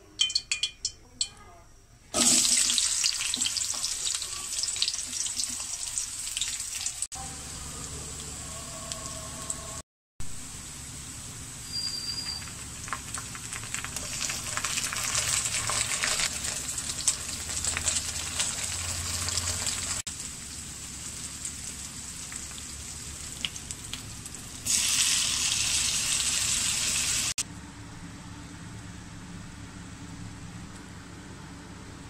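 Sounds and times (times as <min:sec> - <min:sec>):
food sizzling in a pan: 0:02.2 - 0:27.4.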